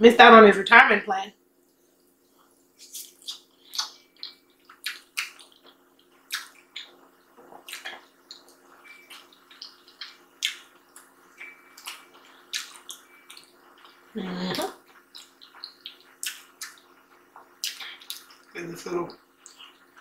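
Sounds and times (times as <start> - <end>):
wet lip smacks and chewing: 2.8 - 14.0, 14.8 - 18.5.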